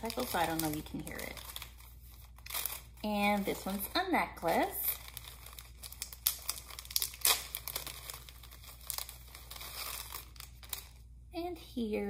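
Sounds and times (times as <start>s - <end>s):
packaging crinkling and rustling: 0.0s - 11.1s.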